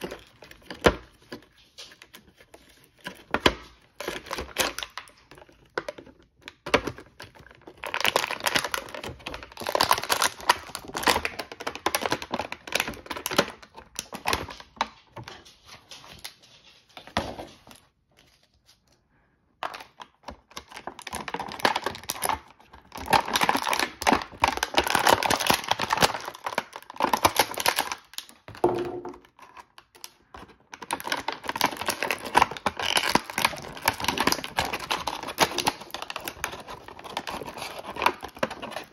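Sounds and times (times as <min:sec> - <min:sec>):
plastic bags crinkling: 0:00.0 - 0:18.4, 0:19.6 - 0:38.9.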